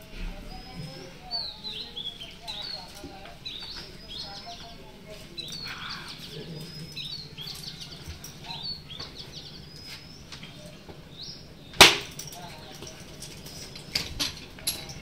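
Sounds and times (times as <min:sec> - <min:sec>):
small birds chirping: 0:00.0 - 0:15.0
loud sharp slap: 0:11.8 - 0:12.1.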